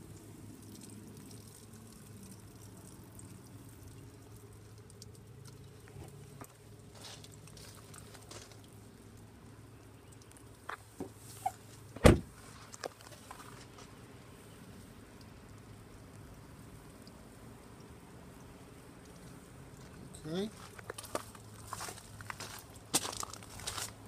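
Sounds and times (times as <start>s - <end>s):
truck door slamming shut: 12.0s - 12.3s.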